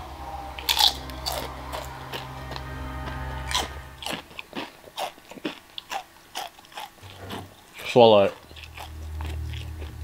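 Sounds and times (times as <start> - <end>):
background music: 0.0 - 5.0, 7.0 - 10.0
chewing crunches: 3.5 - 10.0.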